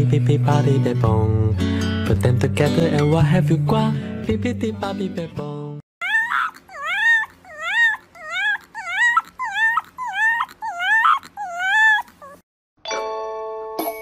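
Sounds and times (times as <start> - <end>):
puppy whimpering howls: 6.0 - 12.4.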